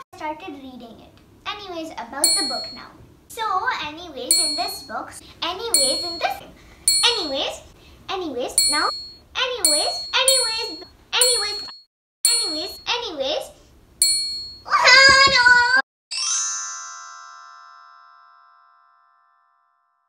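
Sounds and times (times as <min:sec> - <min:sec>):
bell-like chime: 0:02.2 - 0:02.8, 0:04.3 - 0:04.9, 0:05.8 - 0:07.3, 0:08.6 - 0:12.8, 0:14.0 - 0:14.7
girl crying out high-pitched: 0:14.7 - 0:15.8.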